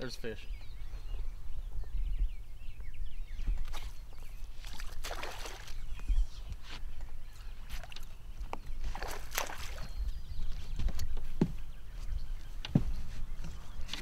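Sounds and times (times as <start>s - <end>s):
wind rumble on microphone: 0.2s - 14.0s
water sloshing against hull: 3.4s - 14.0s.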